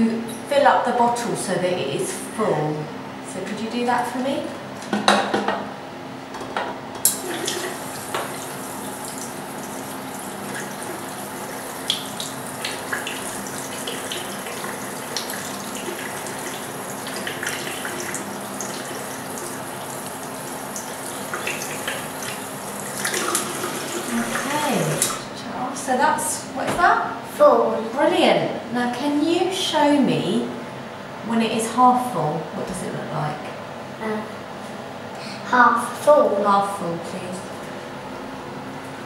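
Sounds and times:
tap water filling plastic bottle: 7.1 - 25.1.

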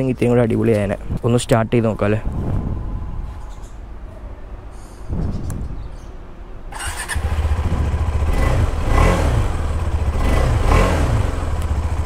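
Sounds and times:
motorcycle engine idling and revving: 6.7 - 12.0.

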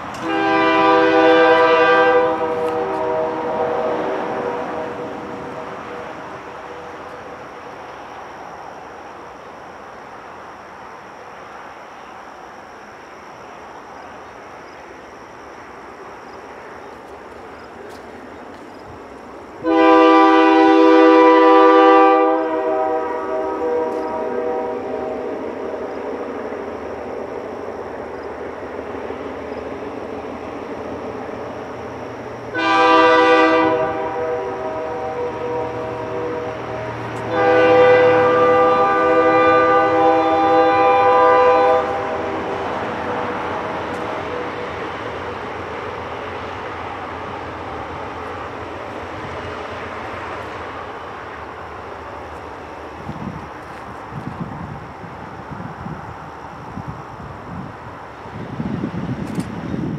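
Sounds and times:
diesel locomotives running: 0.0 - 59.9
air horn blast: 0.1 - 6.2, 19.6 - 25.3, 32.5 - 42.6.

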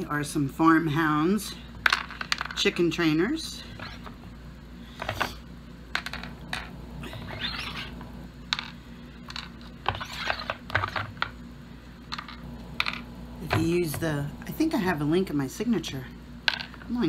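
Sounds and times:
plastic scraping rub: 9.4 - 11.2.

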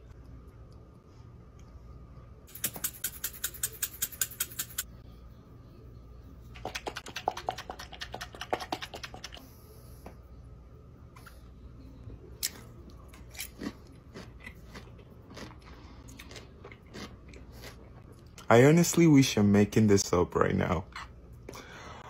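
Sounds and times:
person chewing crunchy pickles: 12.4 - 18.5.

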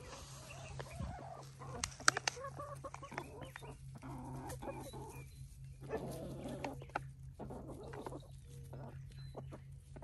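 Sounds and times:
hens clucking softly: 0.0 - 10.0
sharp clicks: 1.8 - 3.3.

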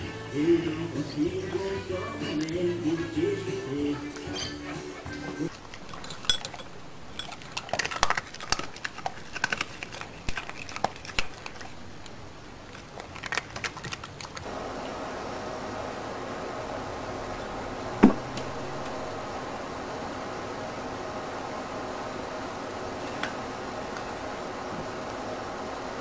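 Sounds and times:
music: 0.0 - 5.5
kibble crunching in a bowl: 5.5 - 15.0
steady hiss: 14.4 - 26.0.

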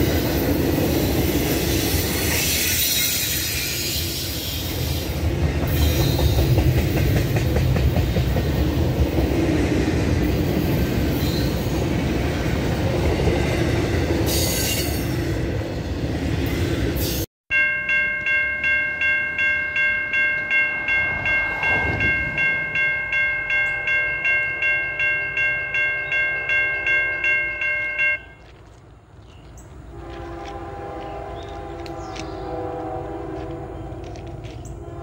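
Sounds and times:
freight train rumbling past: 0.0 - 17.3, 17.9 - 35.0
railroad crossing bell ringing: 14.3 - 15.2, 17.0 - 28.6.

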